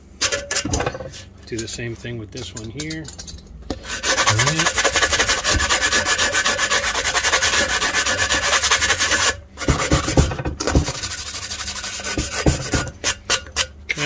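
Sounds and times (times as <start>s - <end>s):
sanding block rubbing metal rod: 3.8s - 10.2s, 10.8s - 13.7s.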